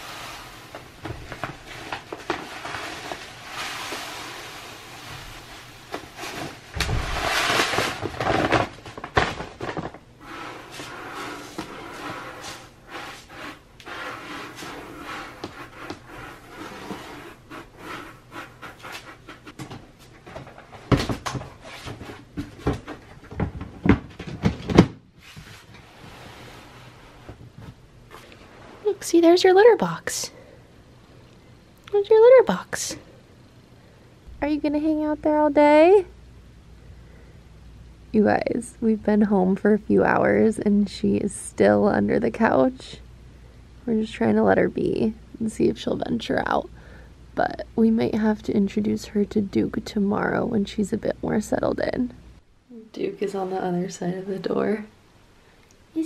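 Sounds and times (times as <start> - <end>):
cat litter pouring into plastic box: 0.0 - 0.8, 1.6 - 9.7.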